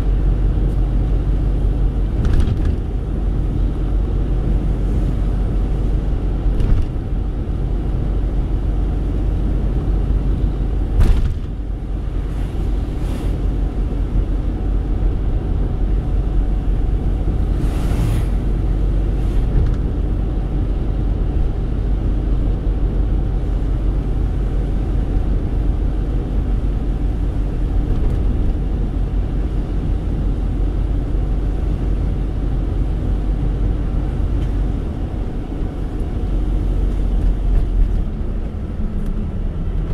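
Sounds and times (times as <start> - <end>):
car engine and tyres on wet road: 0.0 - 39.9.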